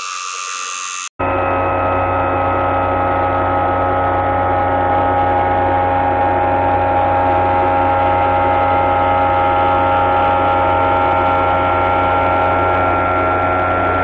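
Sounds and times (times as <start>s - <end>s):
milling machine cutting plastic: 0.0s - 1.1s
steady hum of held tones: 0.0s - 14.0s.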